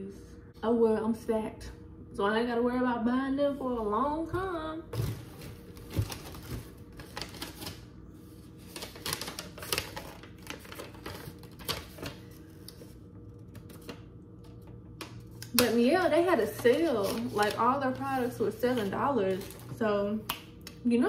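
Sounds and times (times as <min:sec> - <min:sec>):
paper crinkling and crackling: 0:05.0 - 0:19.8.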